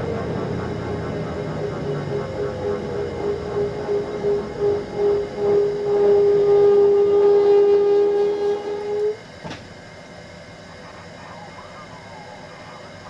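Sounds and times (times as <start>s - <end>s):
helicopter running noise: 0.0s - 6.7s.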